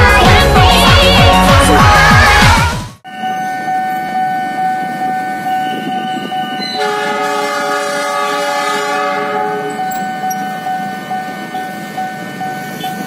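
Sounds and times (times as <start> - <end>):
railway warning chord: 3.0 - 13.0.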